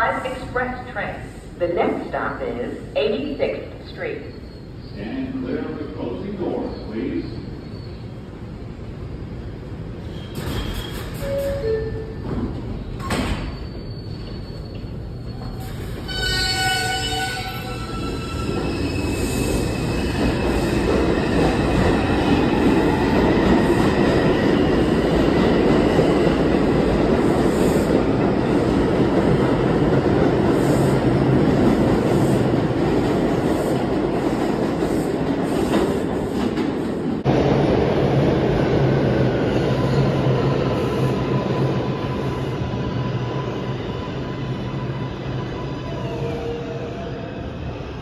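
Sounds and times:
train wheels rumbling on rails: 9.2 - 43.4
wheel squeal: 10.0 - 12.0, 13.0 - 19.6.

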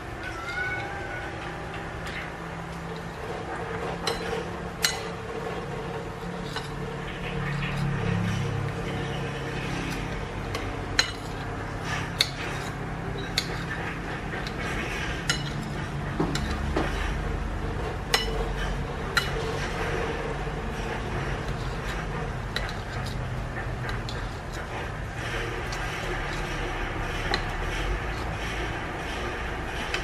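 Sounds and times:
knife scraping a ceramic plate: 2.0 - 17.2, 18.0 - 29.2.

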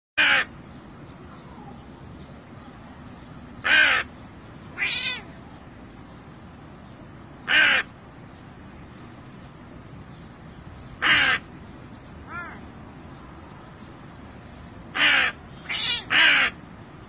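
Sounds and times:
crow cawing: 0.2 - 0.5, 3.6 - 4.1, 7.4 - 7.9, 11.0 - 11.5, 14.9 - 16.6
soft crow call: 0.2 - 0.5, 3.6 - 4.1, 7.4 - 7.9, 11.0 - 11.5, 14.9 - 16.6.

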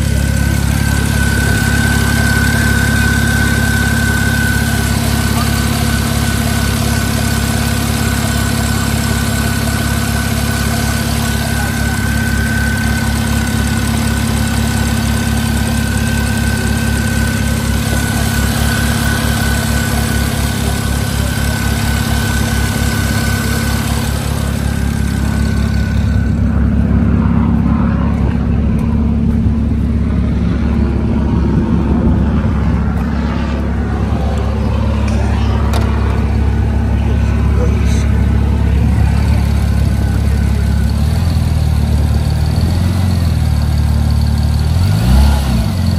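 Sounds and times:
thin high whine: 0.0 - 6.7, 11.4 - 40.9
car engine idling: 0.0 - 45.9.

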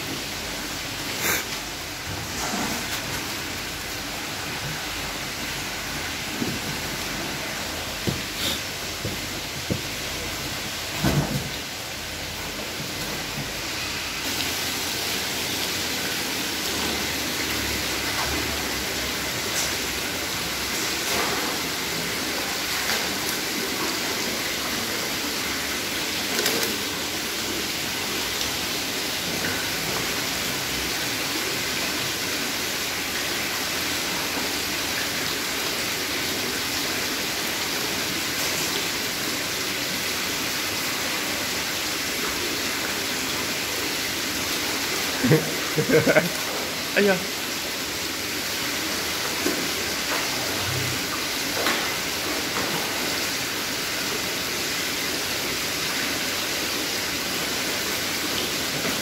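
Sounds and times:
water pouring into tanks: 0.0 - 59.0.

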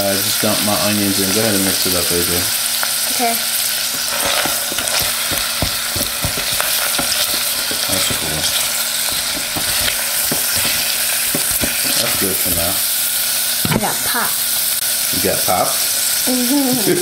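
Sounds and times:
onions sizzling in oil: 0.0 - 17.0
spatula scraping a pot: 3.8 - 13.0.

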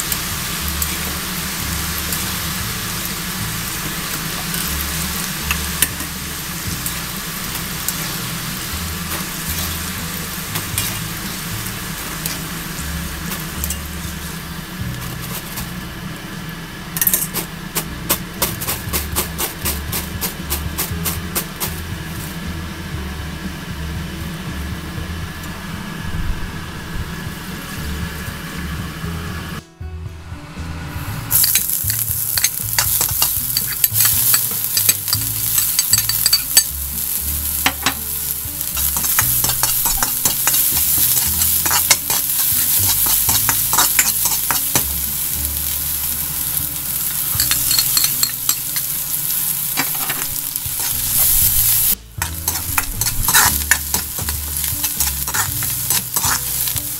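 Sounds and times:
food sizzling in hot oil: 0.0 - 23.6, 31.3 - 56.9
spatula scraping wok: 0.0 - 29.4, 30.2 - 56.9.

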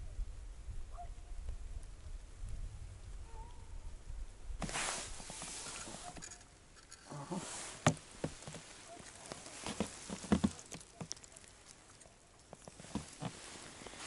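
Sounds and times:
clothing rustle: 4.6 - 14.0
light clicks and taps: 7.8 - 13.4.

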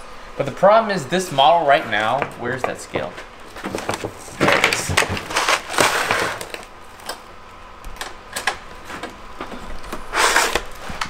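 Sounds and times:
rustling: 1.7 - 6.7.

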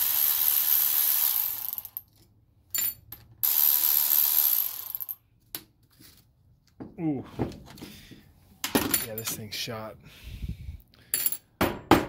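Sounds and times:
electric ratchet running: 0.0 - 2.1, 3.4 - 5.2.

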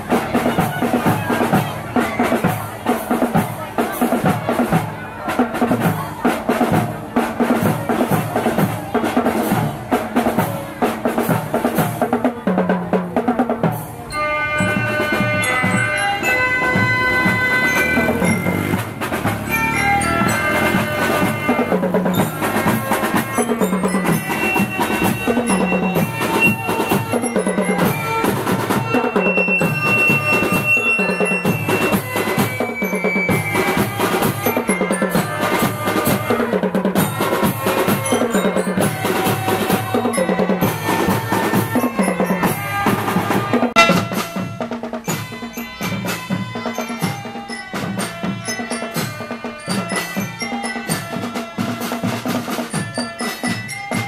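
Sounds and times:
bass and snare drums marching: 0.0 - 54.0
bell-lyra melody: 14.1 - 36.5, 37.1 - 54.0.

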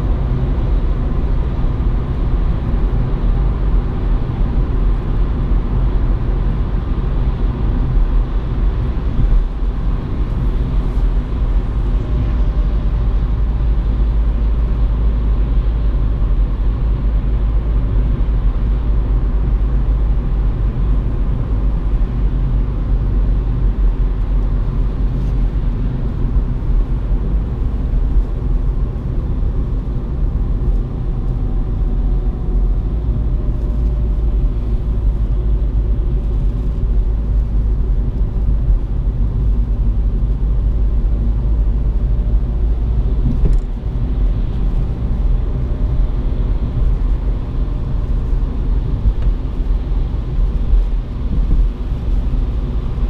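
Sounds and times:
car engine drone: 0.0 - 53.0
tyre noise on wet road: 17.6 - 53.0.

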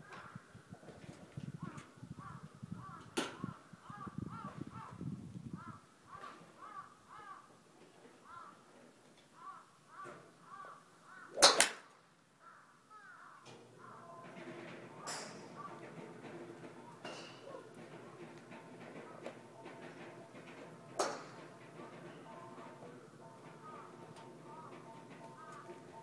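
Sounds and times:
golf club striking ball: 11.4 - 11.8.

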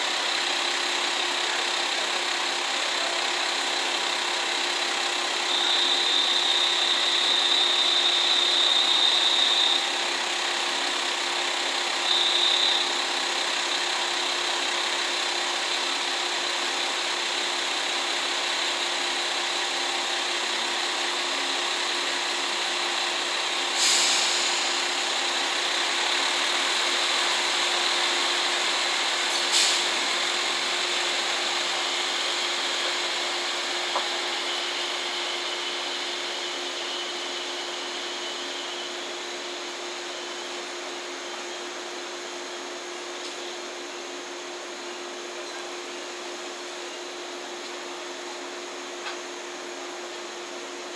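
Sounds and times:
high steady whine: 0.0 - 50.9
train diesel engines running: 0.0 - 50.9
short sharp hisses: 23.7 - 24.8, 29.3 - 30.0.

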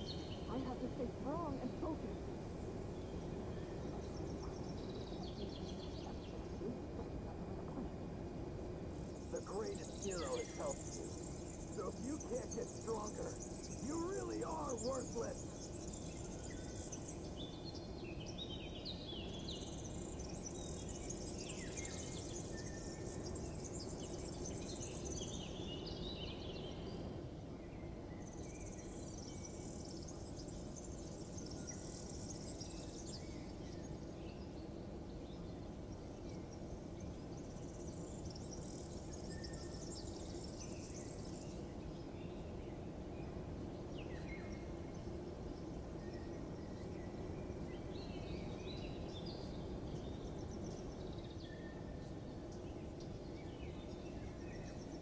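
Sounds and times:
low background hum: 0.0 - 55.0
bird chirps: 2.9 - 8.0, 9.0 - 27.1.

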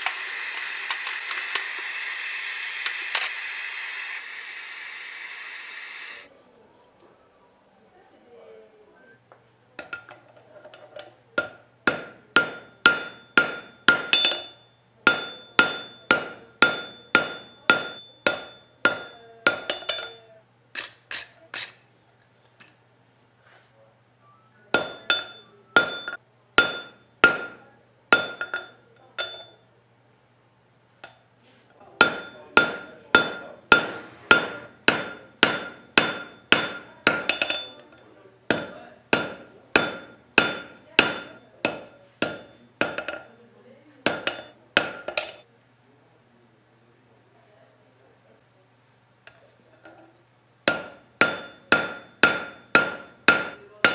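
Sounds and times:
hammer ringing on anvil: 11.4 - 20.2, 24.7 - 29.6, 32.0 - 37.9, 38.5 - 43.2, 50.7 - 53.9.

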